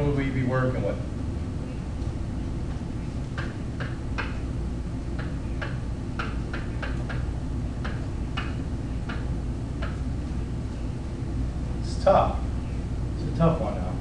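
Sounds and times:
low room hum: 0.0 - 14.0
stylus tapping on whiteboard: 3.3 - 4.4, 5.2 - 10.0.

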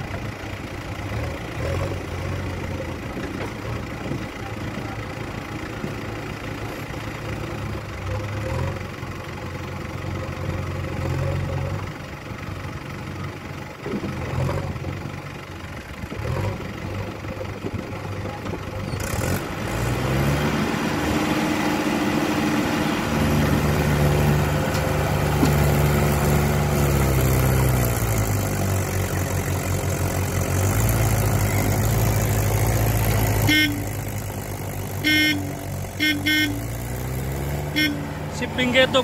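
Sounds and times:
diesel engines revving under load: 0.0 - 39.0
horn toots: 33.4 - 34.0, 35.0 - 36.8, 37.7 - 38.1.

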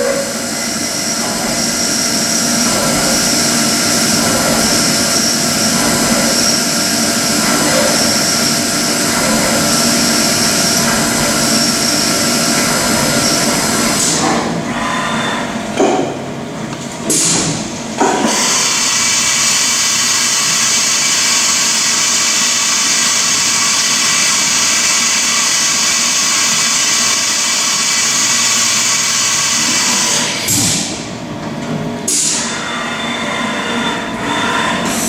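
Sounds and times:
milling machine spindle whine: 0.0 - 15.6, 32.2 - 35.0
hiss of cutting and coolant spray: 18.3 - 30.5.

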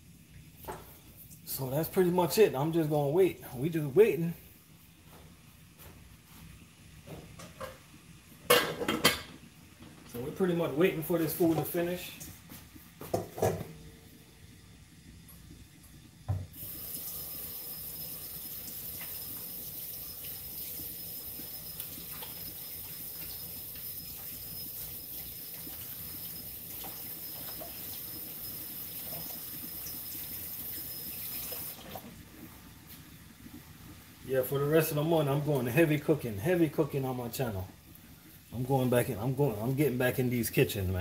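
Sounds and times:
kitchen tap running: 15.5 - 32.4.

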